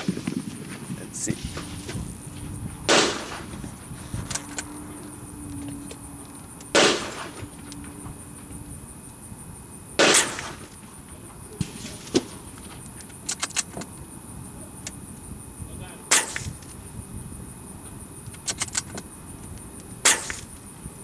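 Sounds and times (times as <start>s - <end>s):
rifle shots: 2.9s - 3.6s, 6.7s - 7.4s, 10.0s - 10.7s, 16.1s - 16.6s, 20.0s - 20.5s.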